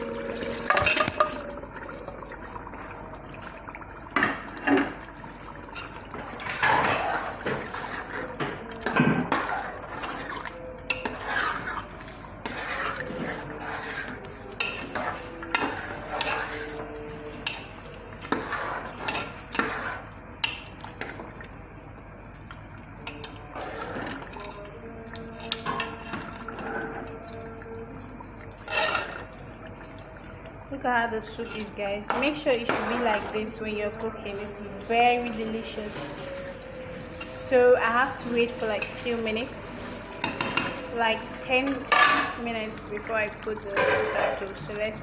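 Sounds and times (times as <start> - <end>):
metal ladle stirring and knocking: 0.0 - 1.5, 5.6 - 21.2, 23.0 - 27.6, 28.6 - 29.3, 35.6 - 42.6, 43.6 - 44.6
soup bubbling: 0.0 - 43.8
ladle clinking against pot: 40.2 - 40.9.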